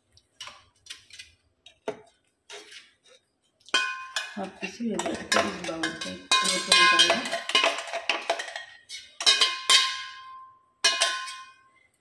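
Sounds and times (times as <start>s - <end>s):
metal jar clanking on steel plate: 3.7s - 11.7s.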